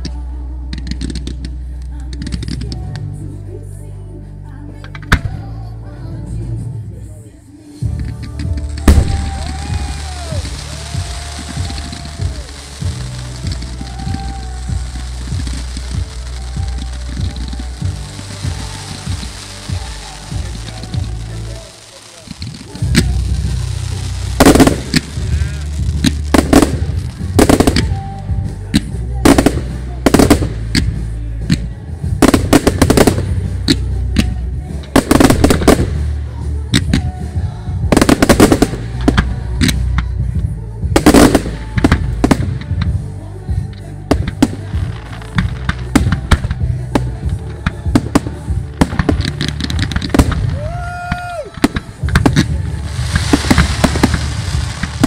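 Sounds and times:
fireworks crackling: 0.0s - 3.1s, 7.4s - 55.0s
fireworks bangs: 7.9s - 40.0s, 44.1s - 55.0s.

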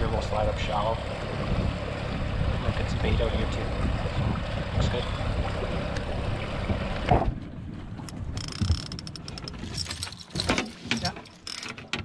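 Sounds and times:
wind and boat noise: 0.0s - 12.0s
fishing gear clicking and rattling: 8.0s - 12.0s.

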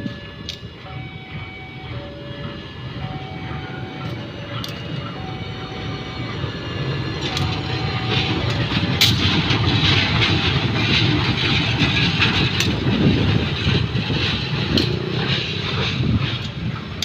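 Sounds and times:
level-crossing alarm two-tone: 0.0s - 9.0s
locomotive engine passing: 0.0s - 17.0s
train wheels on rails: 0.0s - 17.0s.

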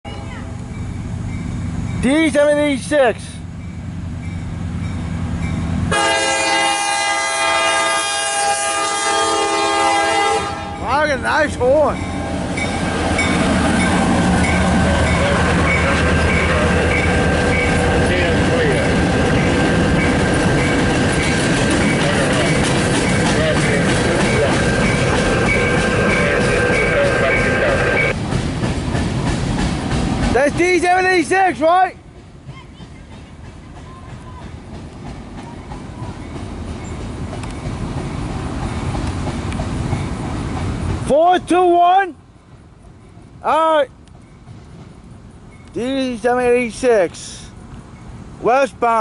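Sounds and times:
train rumbling on rails: 0.1s - 49.0s
locomotive air horn chord: 5.9s - 10.8s
diesel engine rumbling low: 10.6s - 30.8s
high-pitched wheel squeal: 21.9s - 28.1s.

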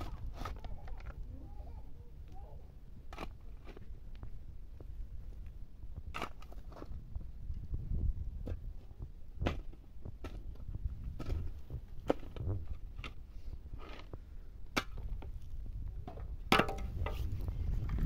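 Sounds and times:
low microphone rumble: 15.3s - 18.0s.

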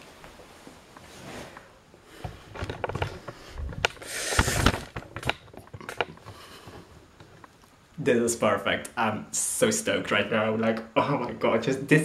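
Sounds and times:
rustling: 0.0s - 7.9s
sharp clicks and knocks: 2.3s - 6.4s.

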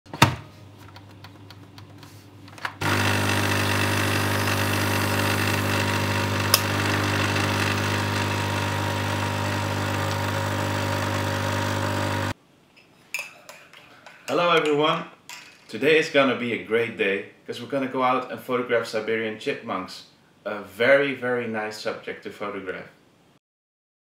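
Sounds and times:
coffee machine pump hum: 2.8s - 12.4s
coffee machine click: 6.4s - 7.0s.

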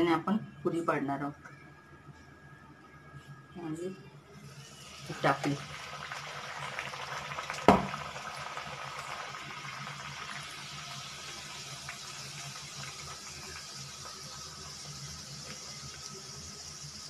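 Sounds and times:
dough deep-frying in hot oil: 4.4s - 17.0s
sharp knock: 7.7s - 7.9s.

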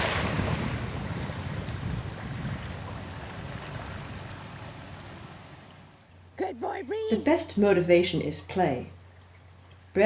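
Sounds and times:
wind rumble on microphone: 0.0s - 6.0s.

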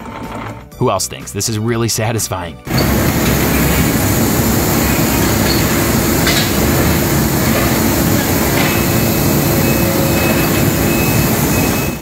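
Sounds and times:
conveyor machine rumbling: 2.7s - 12.0s.

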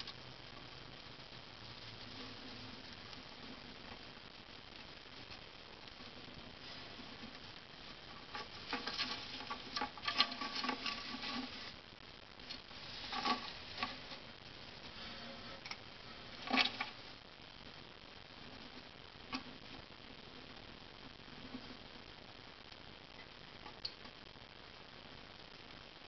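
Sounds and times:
mouse scrabbling and rustling: 6.6s - 11.8s, 12.4s - 14.3s, 15.0s - 17.0s.

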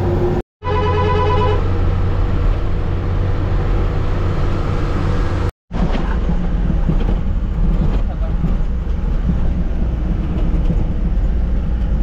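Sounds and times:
road noise: 0.0s - 12.0s
short tone: 0.6s - 1.6s.

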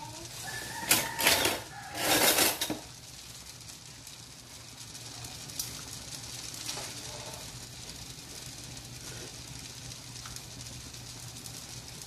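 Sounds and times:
broth boiling in a wok: 0.0s - 12.0s.

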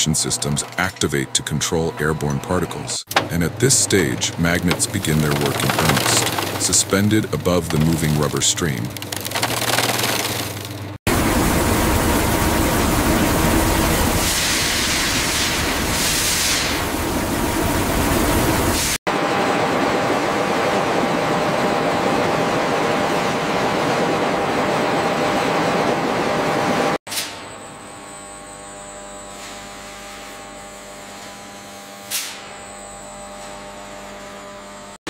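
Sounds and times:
conveyor machine with faint tone: 0.0s - 10.1s
heavy low machine running: 0.0s - 16.0s
shredder rotor noise: 3.1s - 14.2s.

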